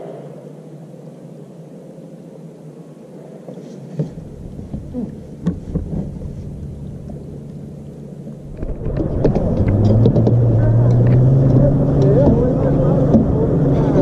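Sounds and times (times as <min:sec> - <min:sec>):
kayak knocks and creaks: 0:03.9 - 0:14.0
wind buffeting microphone: 0:04.0 - 0:14.0.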